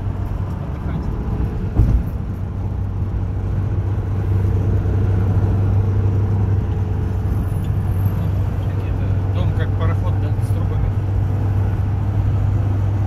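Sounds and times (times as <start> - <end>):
low engine and road drone: 0.0 - 13.0
brief thump: 1.7 - 2.2.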